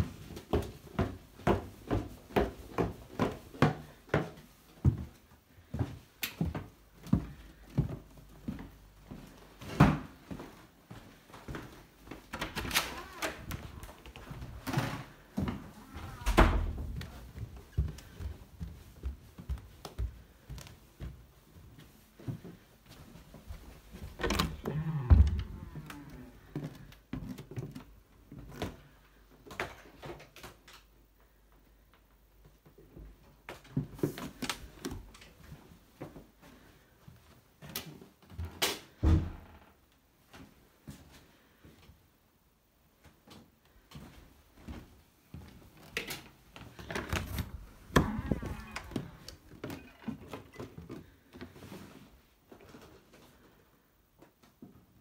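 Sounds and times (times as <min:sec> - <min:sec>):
footsteps: 0:00.0 - 0:28.8, 0:43.0 - 0:53.4
door opening with heavy thud: 0:16.0 - 0:16.9, 0:47.2 - 0:50.2.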